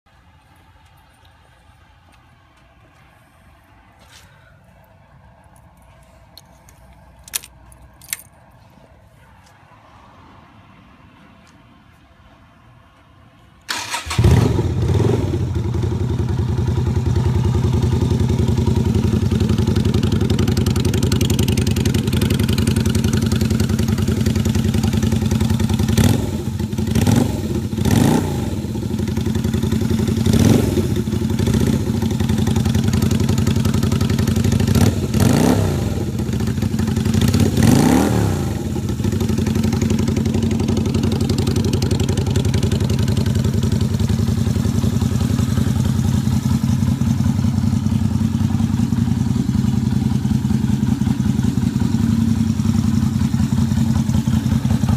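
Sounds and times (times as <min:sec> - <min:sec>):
motorcycle engine idling and revving: 0:13.7 - 0:54.9.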